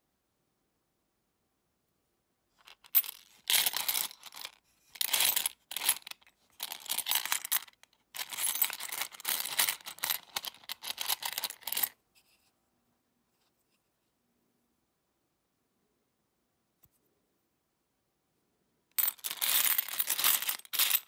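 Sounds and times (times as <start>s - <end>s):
coins clinking and scraping: 2.6s - 11.9s, 19.0s - 21.0s.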